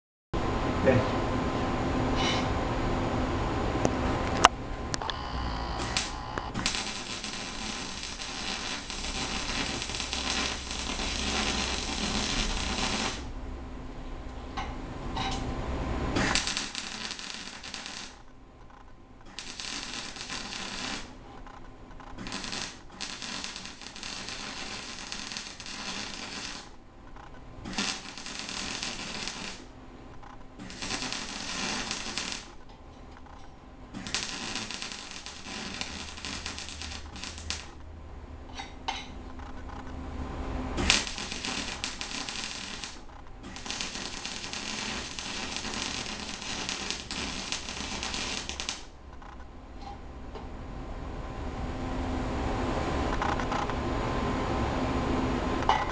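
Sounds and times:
welder arc crackling: 0:04.2 - 0:13.4, 0:16.1 - 0:38.0, 0:40.7 - 0:49.5.

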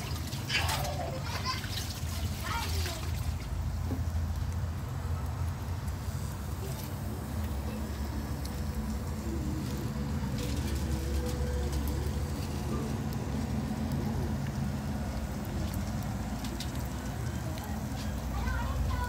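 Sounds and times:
charcoal fire crackling: 0:00.0 - 0:19.0
low rumble with faint hum: 0:00.0 - 0:19.0.

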